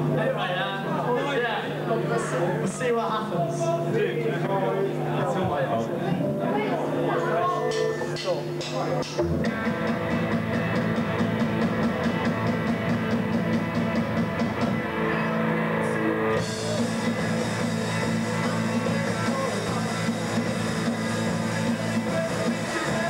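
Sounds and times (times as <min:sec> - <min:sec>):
rock band playing live: 0:06.1 - 0:23.0.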